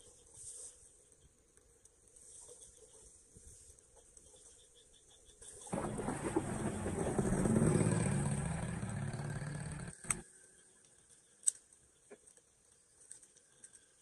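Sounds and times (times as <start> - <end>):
light clicks of twigs: 10.0 - 14.0.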